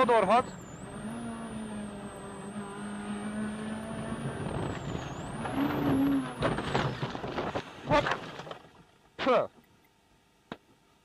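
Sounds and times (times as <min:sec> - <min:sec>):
rally car engine running: 0:00.0 - 0:08.5
car crashing into bushes: 0:04.5 - 0:08.9.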